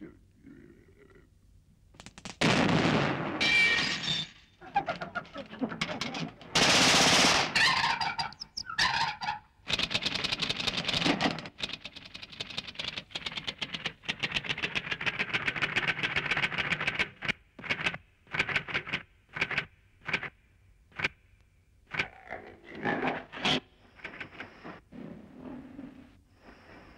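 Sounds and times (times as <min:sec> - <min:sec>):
fast mechanical clicking rattle: 0:09.7 - 0:20.2.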